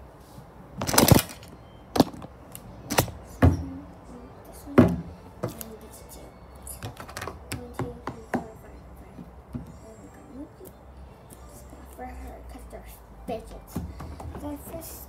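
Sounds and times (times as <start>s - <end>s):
hard objects knocking: 6.8s - 8.5s.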